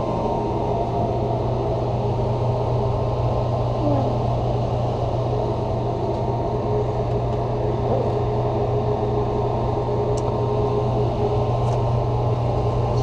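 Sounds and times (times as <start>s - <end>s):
ventilation humming: 0.0s - 13.0s.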